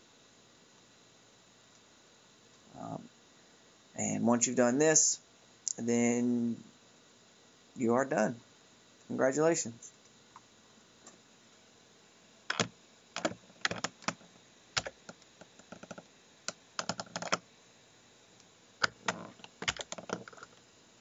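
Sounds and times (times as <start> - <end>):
typing on computer keyboard: 12.5 - 14.2, 14.8 - 16.0, 16.8 - 17.4, 18.8 - 20.6.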